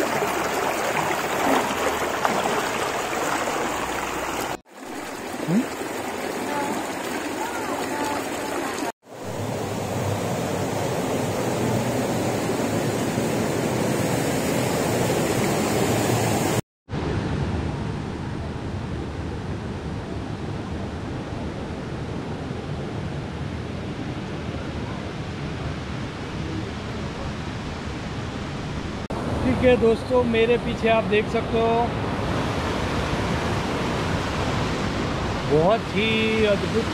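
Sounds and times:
waterfall rushing: 0:00.0 - 0:16.6.

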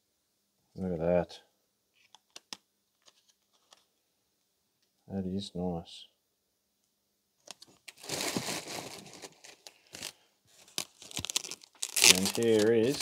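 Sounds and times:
plastic wrapping crinkling: 0:07.5 - 0:13.0.

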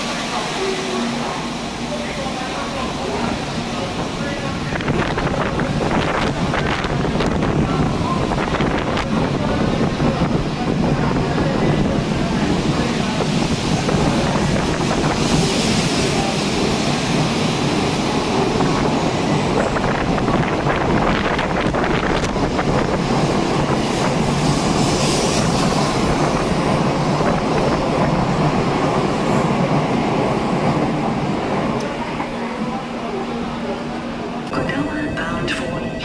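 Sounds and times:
train rushing past: 0:00.0 - 0:36.0
wind buffeting microphone: 0:04.7 - 0:16.3, 0:18.4 - 0:30.2.

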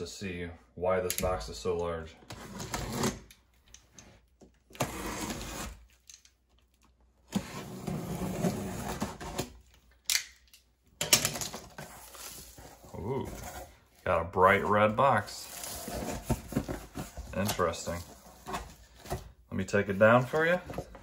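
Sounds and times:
cardboard and tape scraping: 0:02.2 - 0:03.4, 0:04.7 - 0:06.0, 0:07.2 - 0:09.7, 0:14.5 - 0:19.4.

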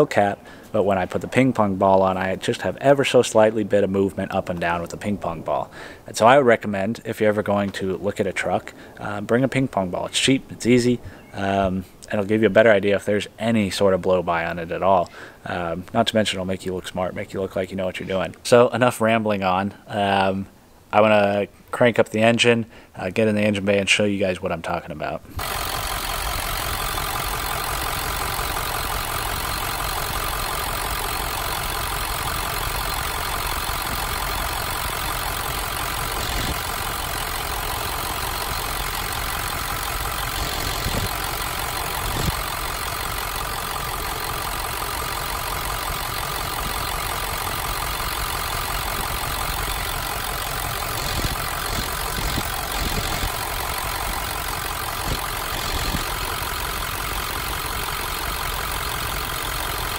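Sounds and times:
diesel engine idling: 0:25.3 - 0:59.9.

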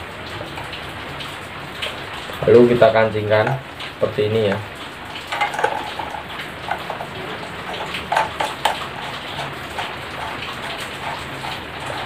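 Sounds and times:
plastic parts clicking and rattling: 0:05.2 - 0:12.0.

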